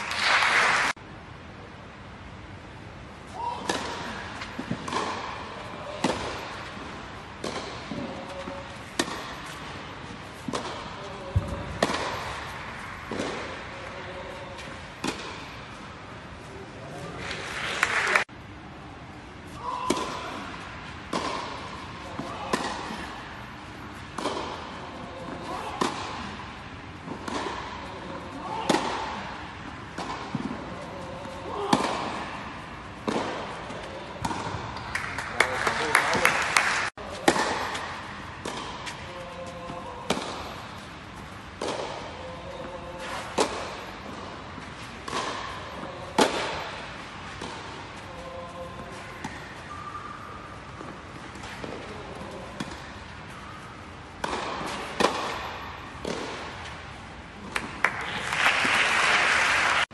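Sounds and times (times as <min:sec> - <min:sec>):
tennis ball struck by rackets: 0:03.6 - 0:13.8, 0:14.6 - 0:15.8, 0:19.8 - 0:26.4, 0:27.0 - 0:35.0, 0:37.1 - 0:47.9, 0:50.7 - 0:53.0, 0:54.1 - 0:56.8
ball bouncing: 0:10.4 - 0:13.6, 0:24.2 - 0:24.7, 0:54.2 - 0:56.5.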